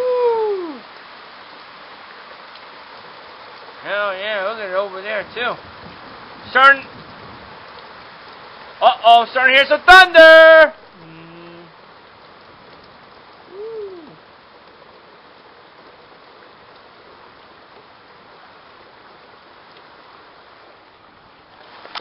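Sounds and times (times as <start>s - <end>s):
heavy rain pouring: 0.0s - 22.0s
hoot-like tone: 13.5s - 14.2s.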